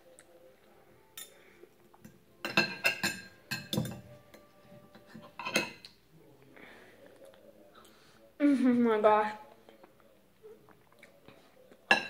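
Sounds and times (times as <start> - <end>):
cutlery clinking on a plate: 1.2 - 1.4, 2.0 - 6.0.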